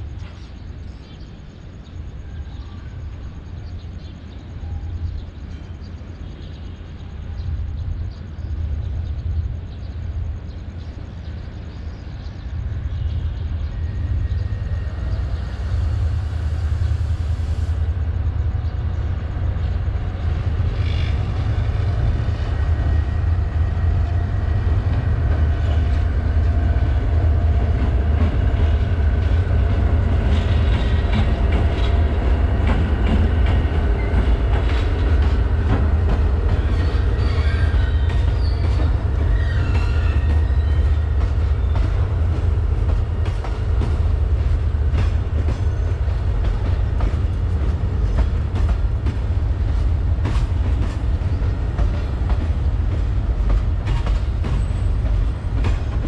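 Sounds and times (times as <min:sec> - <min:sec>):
locomotive engine rumble: 0:06.3 - 0:56.0
wheels clattering on rails: 0:19.4 - 0:56.0
high wheel squeals: 0:36.6 - 0:41.8.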